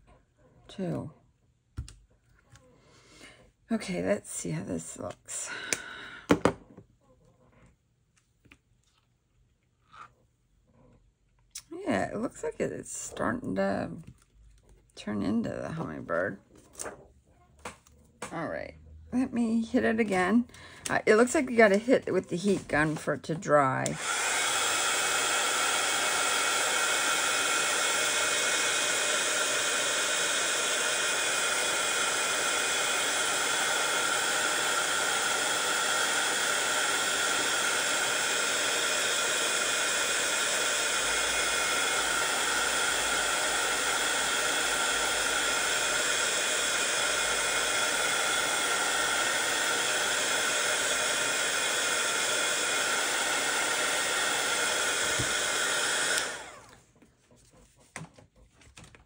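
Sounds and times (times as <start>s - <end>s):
heat gun blowing and whining: 23.8s - 56.8s.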